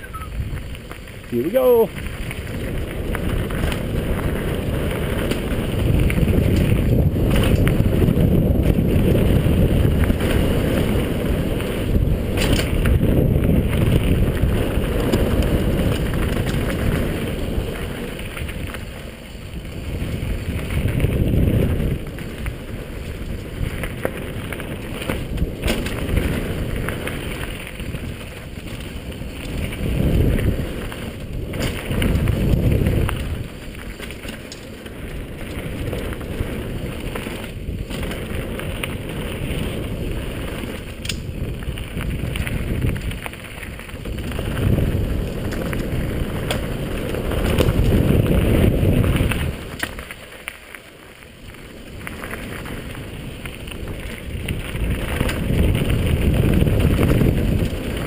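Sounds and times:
wind on microphone: 0:00.0 - 0:50.2, 0:51.5 - 0:58.0
bike tyres rumbling on dirt: 0:00.0 - 0:58.0
bike knocking over bumps: 0:12.0 - 0:18.9, 0:23.3 - 0:39.7.

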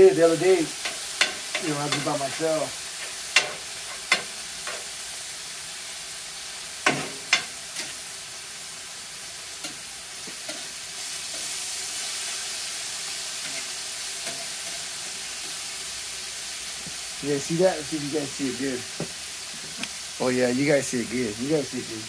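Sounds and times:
chicken sizzling on a griddle: 0:00.0 - 0:22.0
metal spatula scraping and clicking: 0:00.8 - 0:04.9, 0:13.4 - 0:14.8.

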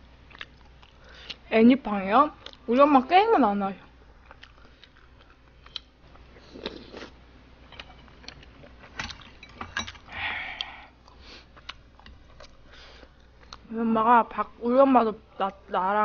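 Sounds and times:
quiet chewing: 0:00.2 - 0:01.5, 0:02.3 - 0:02.7, 0:03.8 - 0:13.7.

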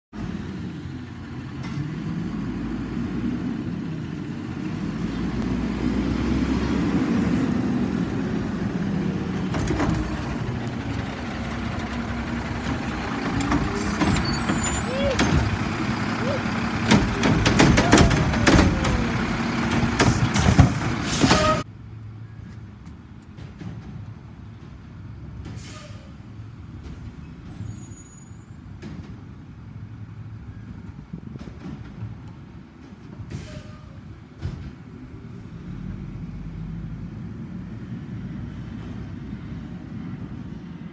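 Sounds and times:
garbage truck engine rumble: 0:00.2 - 0:21.7, 0:22.6 - 0:40.9
air brakes hiss: 0:21.0 - 0:21.6, 0:25.5 - 0:26.4, 0:33.3 - 0:34.1.

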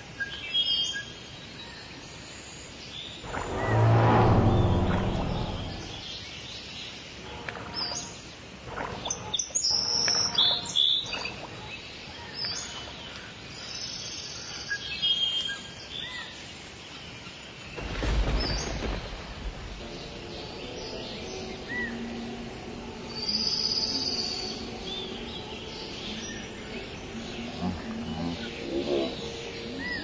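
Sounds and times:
faint outdoor ambience: 0:00.0 - 0:30.0
deep low sound: 0:03.2 - 0:06.1
birds chirping: 0:19.7 - 0:30.0.

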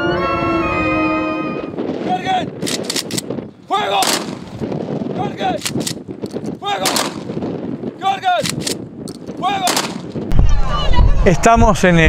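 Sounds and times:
rifle volleys: 0:02.6 - 0:03.3, 0:04.0 - 0:04.6, 0:05.6 - 0:07.4, 0:08.4 - 0:10.2.

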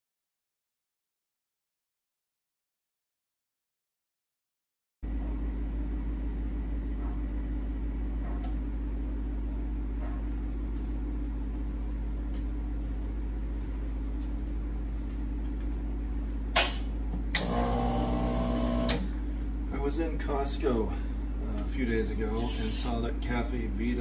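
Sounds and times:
low background hum: 0:05.0 - 0:24.0
espresso machine pump buzzing: 0:17.4 - 0:19.2.

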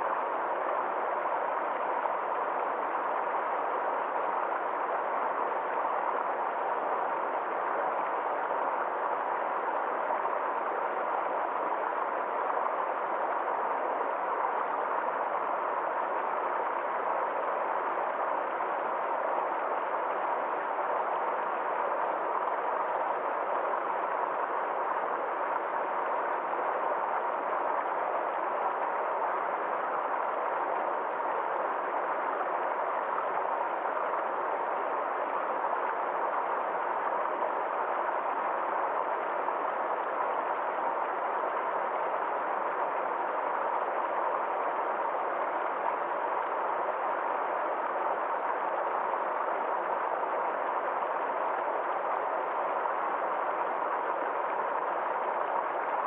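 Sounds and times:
stream rushing over boulders: 0:00.0 - 0:56.0.

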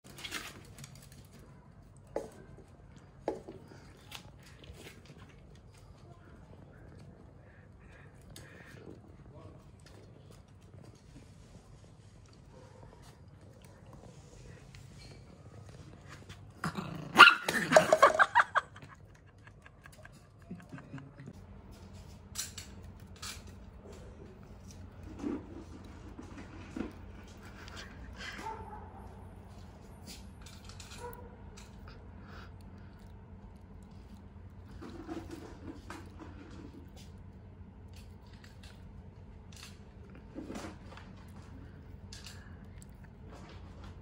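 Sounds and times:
dog barking sharply: 0:17.2 - 0:17.6.

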